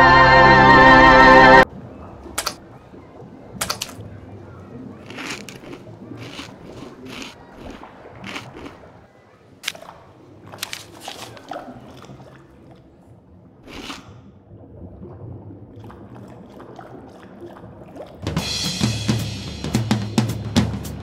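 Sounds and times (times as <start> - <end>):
cartoon chewing crunches: 5.0 - 9.0, 9.6 - 12.1, 13.6 - 14.2.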